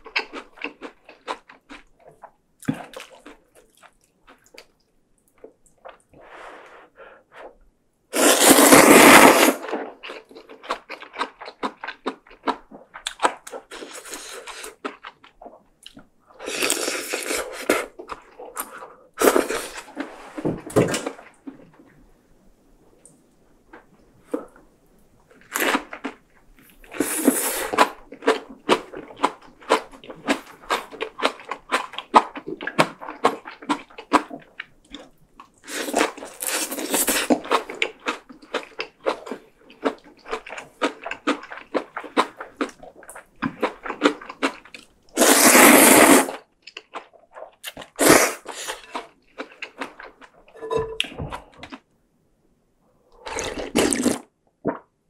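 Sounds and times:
loud slurps: 8.2 - 9.6, 45.2 - 46.4, 48.0 - 48.8
wet chewing with mouth clicks: 9.6 - 20.2.

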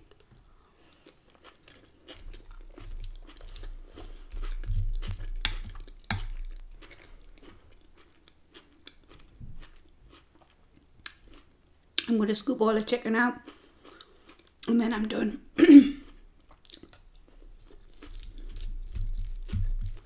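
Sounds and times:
close-up chewing: 0.0 - 12.1, 13.4 - 14.7, 16.0 - 20.0
crunching of lettuce: 16.6 - 20.0.

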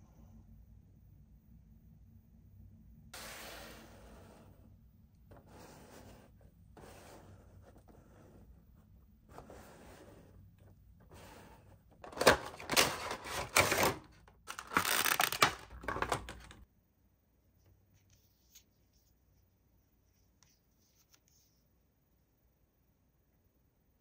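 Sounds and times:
packaging rustling and clicking: 12.0 - 16.6.

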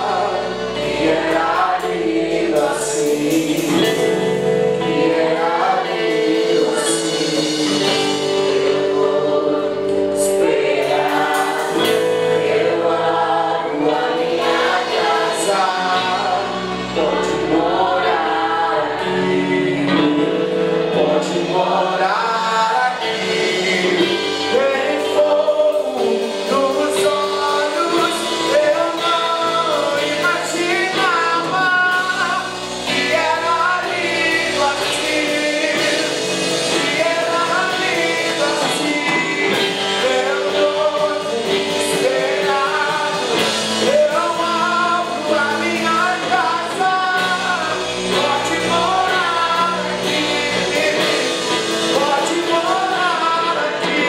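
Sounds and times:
drum kit with cymbals: 0.0 - 54.0
man singing: 0.0 - 54.0
strummed electric guitar: 0.0 - 54.0.

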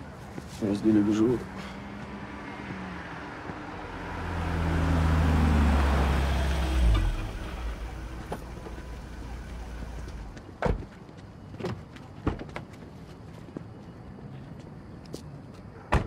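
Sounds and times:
car engine running low: 2.0 - 10.4.

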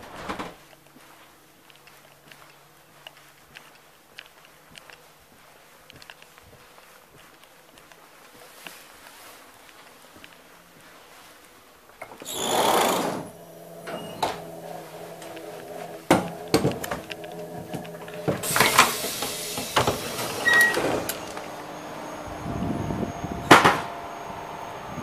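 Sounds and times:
standing train hum: 0.6 - 25.0
sliding door rushing: 12.1 - 24.9.

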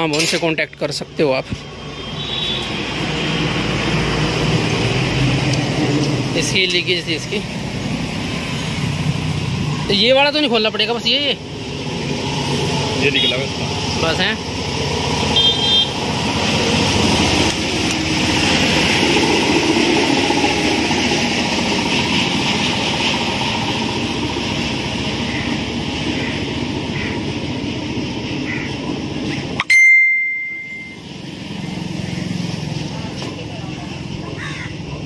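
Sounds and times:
mechanical workshop noise: 0.0 - 0.8
vehicles passing: 0.0 - 35.0
loud metallic ding: 29.6 - 31.0.

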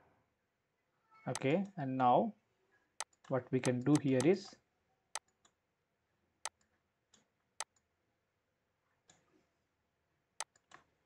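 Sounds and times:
computer mouse clicking: 3.0 - 4.4, 5.2 - 5.6, 6.4 - 7.9, 10.4 - 10.9.

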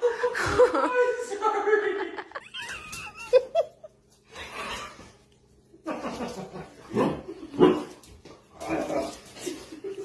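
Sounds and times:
person laughing: 0.0 - 1.2, 1.8 - 4.0.

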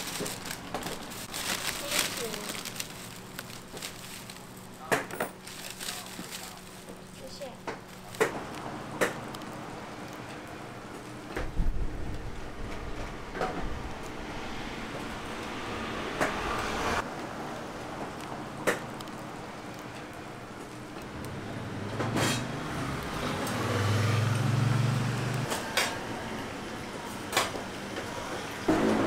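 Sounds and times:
street traffic: 0.0 - 29.0
vehicle engine passing: 13.7 - 17.9, 21.1 - 26.6, 28.4 - 29.0.

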